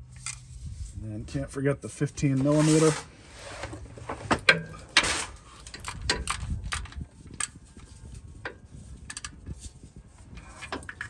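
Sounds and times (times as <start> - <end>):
metal scrape: 2.2 - 5.8.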